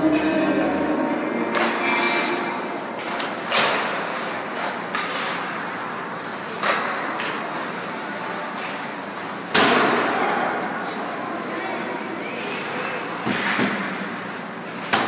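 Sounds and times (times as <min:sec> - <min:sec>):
hockey sticks and puck clacking: 0:03.0 - 0:10.6, 0:13.2 - 0:14.0, 0:14.7 - 0:15.0.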